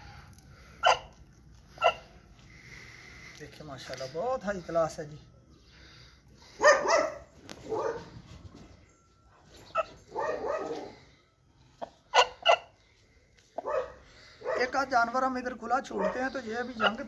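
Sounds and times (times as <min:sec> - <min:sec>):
dog barking: 0:00.8 - 0:01.2, 0:01.8 - 0:02.1, 0:06.6 - 0:08.2, 0:09.7 - 0:11.0, 0:12.1 - 0:12.7, 0:13.6 - 0:14.8, 0:15.9 - 0:17.0.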